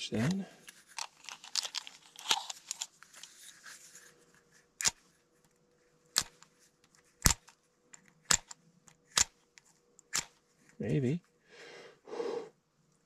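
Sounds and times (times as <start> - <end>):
plastic case clicks and rustles: 0.3 - 3.3.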